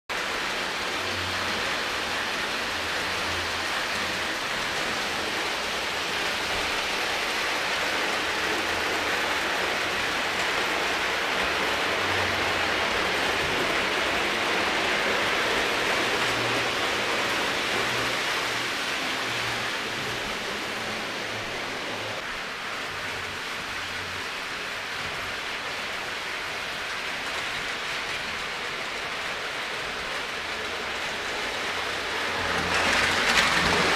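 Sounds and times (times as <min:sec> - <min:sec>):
model trains rumbling on track: 0:00.1 - 0:33.9.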